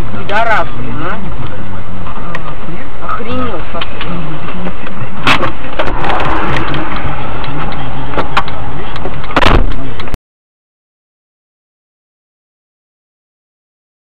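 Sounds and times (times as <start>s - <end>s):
car driving noise: 0.0s - 10.2s
sharp knocks: 8.2s - 9.8s.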